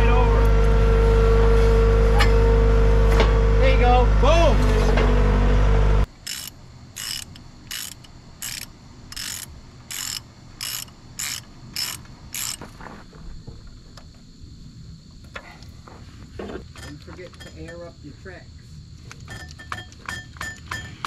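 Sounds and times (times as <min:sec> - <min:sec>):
engine running: 0:00.0 - 0:12.6
ratchet wrench clicking: 0:06.2 - 0:12.6.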